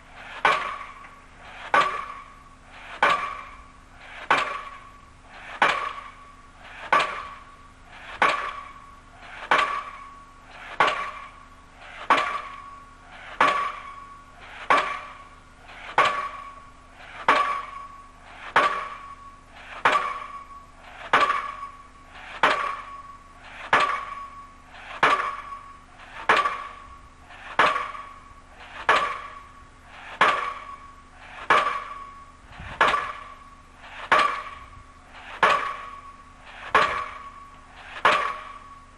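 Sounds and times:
pile hammer bangs: 0:00.3 - 0:02.3, 0:03.0 - 0:03.6, 0:04.2 - 0:04.9, 0:05.5 - 0:06.2, 0:06.8 - 0:07.4, 0:08.1 - 0:11.4, 0:12.0 - 0:12.8, 0:13.4 - 0:14.1, 0:14.7 - 0:16.6, 0:17.2 - 0:19.2, 0:19.8 - 0:21.8, 0:22.4 - 0:23.0, 0:23.6 - 0:24.4, 0:25.0 - 0:26.8, 0:27.5 - 0:28.2, 0:28.8 - 0:29.5, 0:30.1 - 0:30.8, 0:31.4 - 0:38.8.

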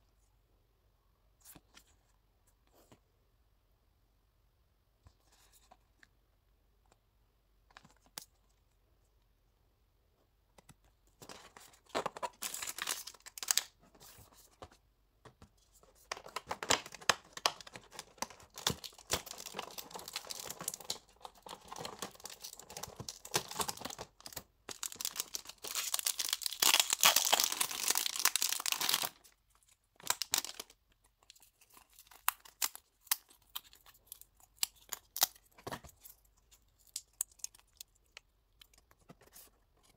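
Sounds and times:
packaging crinkling and tearing: 0:12.0 - 0:13.8, 0:16.0 - 0:29.3, 0:30.0 - 0:39.4.

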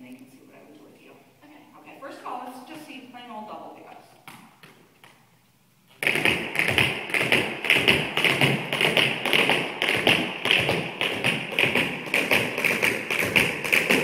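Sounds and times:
tap shoes on hard floor: 0:03.9 - 0:05.2, 0:05.9 - 0:14.0.

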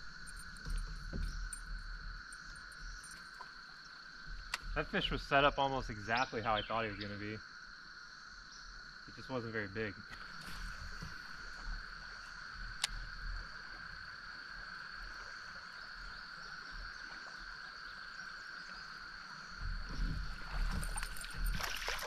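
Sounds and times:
fast river water: 0:18.9 - 0:22.0
splashing and knocking: 0:19.6 - 0:22.0.

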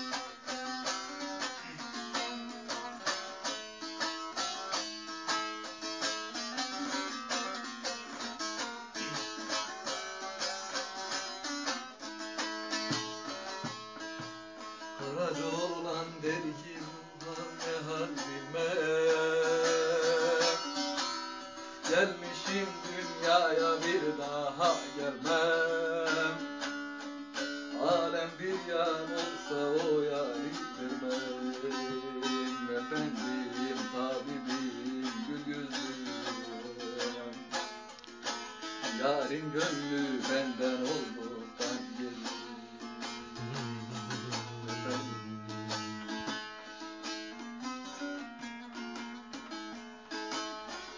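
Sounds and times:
plucked long-necked lute melody: 0:00.0 - 0:50.9
person singing long wavering notes: 0:15.0 - 0:26.6, 0:27.7 - 0:37.6, 0:39.0 - 0:46.5.

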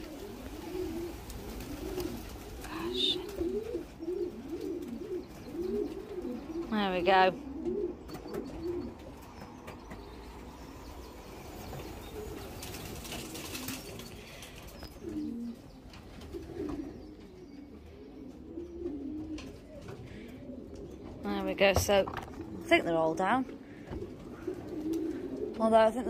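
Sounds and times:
wings flapping: 0:00.0 - 0:06.4, 0:08.2 - 0:16.9, 0:23.9 - 0:25.5
pigeons cooing: 0:00.0 - 0:26.0.

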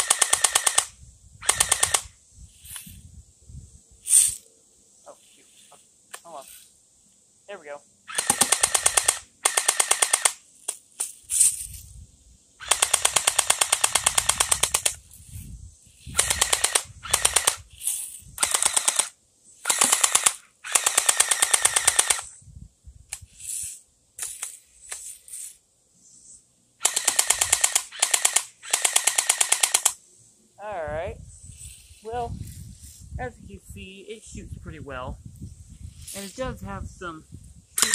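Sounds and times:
airsoft gun firing bursts: 0:00.0 - 0:02.1, 0:08.1 - 0:10.4, 0:12.6 - 0:15.0, 0:16.2 - 0:17.6, 0:18.4 - 0:22.3, 0:26.8 - 0:30.0.

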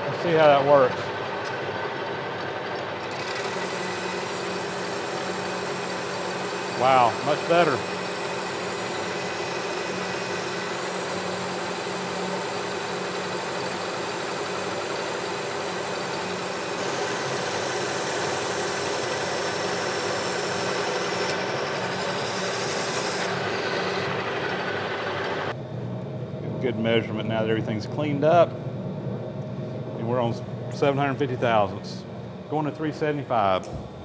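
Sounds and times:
lathe motor and gear hum: 0:00.0 - 0:34.0
lathe cutting hiss: 0:03.1 - 0:25.5.

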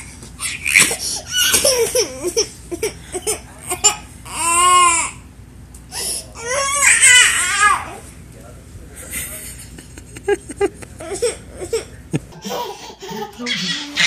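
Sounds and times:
toddler crying: 0:00.4 - 0:05.2, 0:06.4 - 0:08.0
toddlers squealing and whining: 0:06.3 - 0:08.1.

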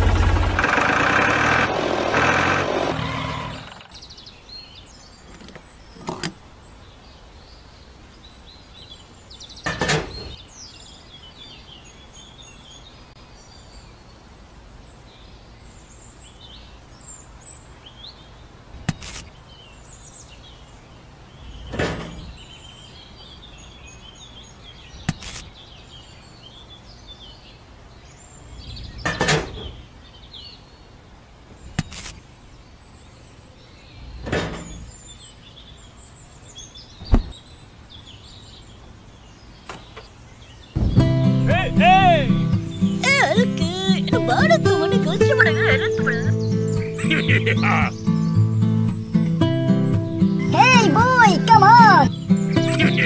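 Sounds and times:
toy tractor engine running: 0:00.0 - 0:03.8
birds chirping: 0:00.0 - 0:53.0
sharp knocks: 0:37.0 - 0:37.4.

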